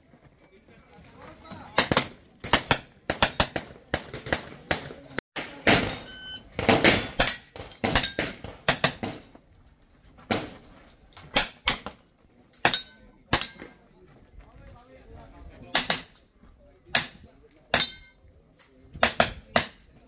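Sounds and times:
pistol shots: 1.8s - 9.2s
electronic timer beep: 6.0s - 6.5s.

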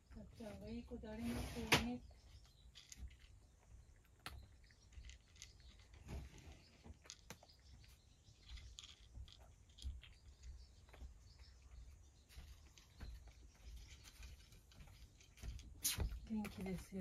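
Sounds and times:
cat crunching dry kibble: 2.3s - 11.0s.

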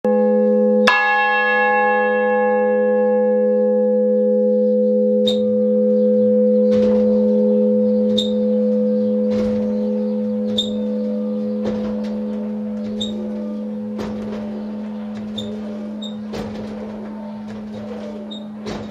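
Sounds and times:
church bell ringing: 0.0s - 18.9s
faint bell knocks: 5.2s - 18.9s.

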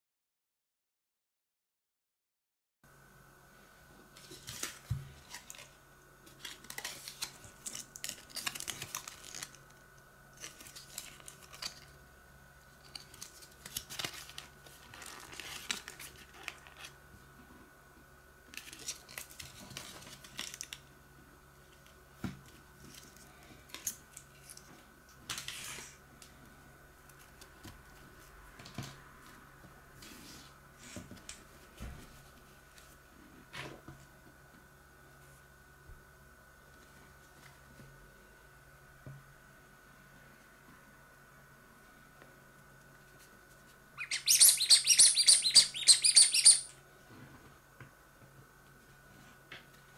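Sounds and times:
plastic and card packaging crinkling: 4.2s - 12.0s, 12.7s - 17.0s, 18.5s - 20.8s.

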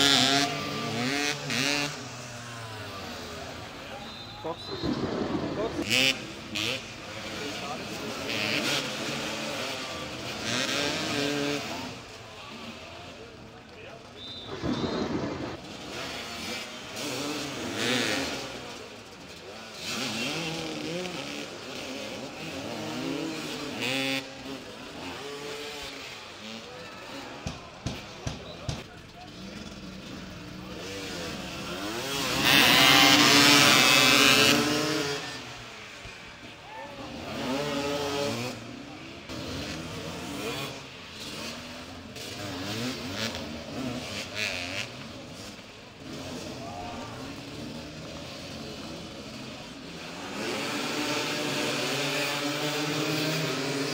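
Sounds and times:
motorcycles revving: 0.0s - 53.9s.

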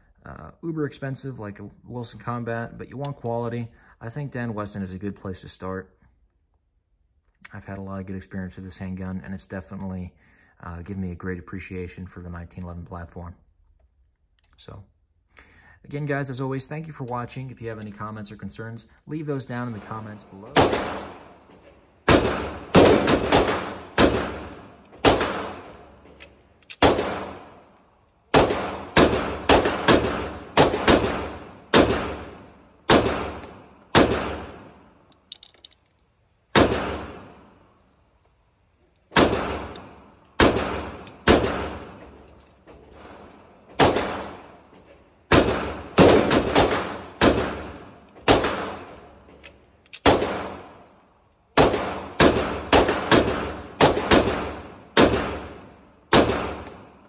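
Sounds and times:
pistol shots echoing indoors: 20.0s - 35.1s, 36.4s - 37.6s, 39.1s - 57.0s.

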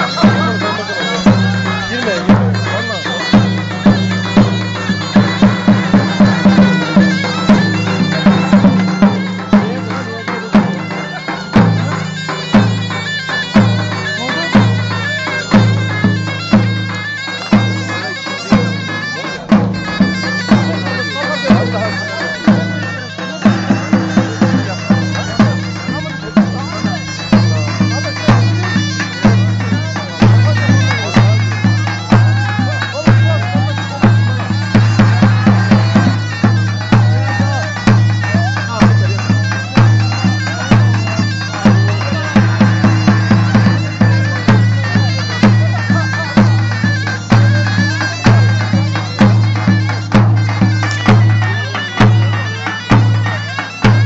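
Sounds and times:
big bass drum beat: 0.0s - 12.8s
shrill double-reed melody: 0.0s - 54.0s.

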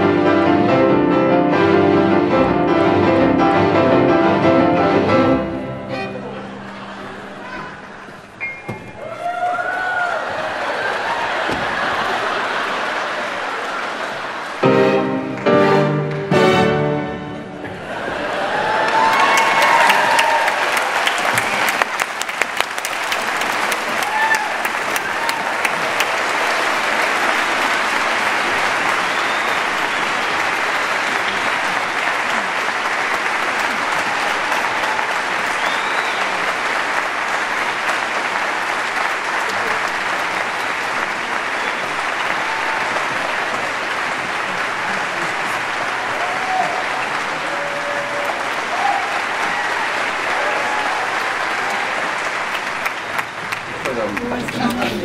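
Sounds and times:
audience applauding: 6.2s - 55.0s
cheers: 9.0s - 14.0s, 17.8s - 32.5s, 33.4s - 37.0s, 41.2s - 54.4s
whistles: 29.0s - 30.2s, 35.5s - 36.4s, 41.6s - 42.0s.

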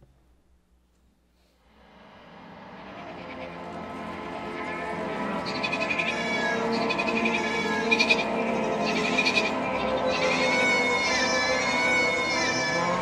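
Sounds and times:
soft sustained music: 1.6s - 13.0s
sheep bleating: 2.8s - 13.0s.

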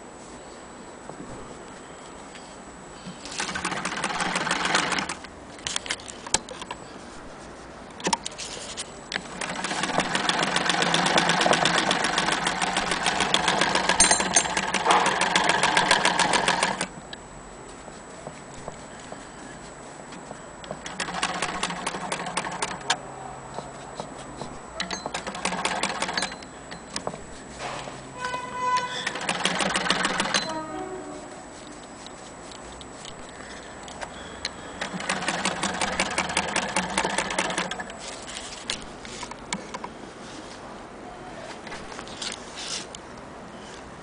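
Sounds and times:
hand-crank sewing machine clattering: 9.4s - 16.9s, 20.8s - 22.8s, 24.9s - 26.4s, 29.0s - 30.5s, 34.8s - 37.8s.

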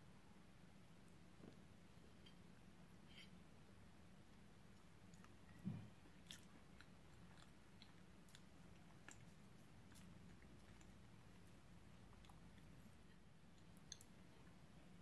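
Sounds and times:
chewing mouth clicks: 6.2s - 11.1s.

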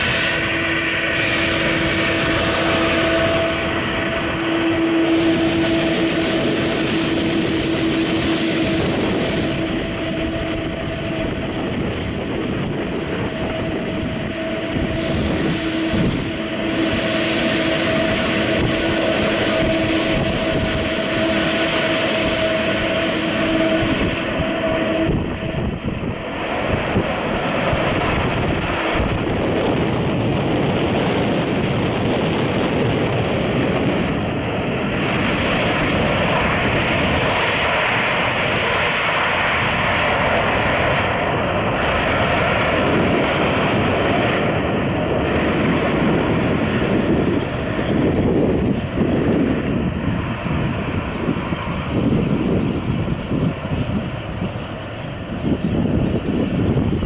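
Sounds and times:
steady tone: 0.0s - 29.8s
jet engine roar: 0.0s - 57.0s.

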